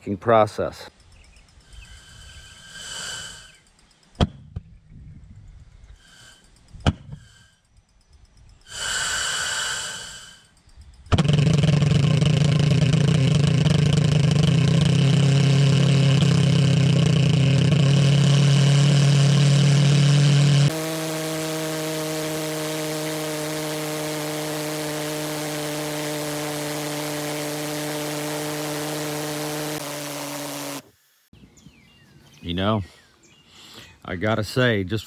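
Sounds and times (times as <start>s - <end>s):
pulse jet engine buzzing: 1.7s - 3.8s, 8.7s - 31.3s
gas hissing: 1.8s - 3.7s, 8.7s - 10.5s.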